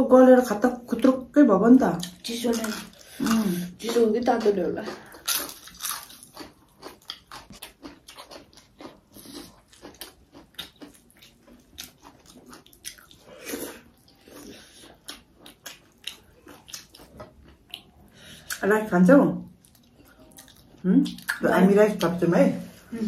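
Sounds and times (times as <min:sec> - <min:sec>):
person chewing and crunching food: 0:02.0 - 0:18.7, 0:19.5 - 0:22.3.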